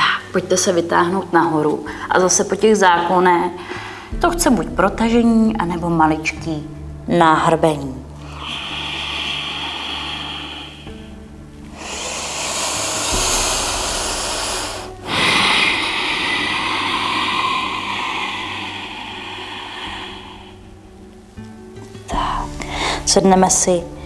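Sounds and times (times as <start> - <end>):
soft background music: 0.0 - 24.0
deep noisy breathing: 3.6 - 4.3, 8.2 - 23.1.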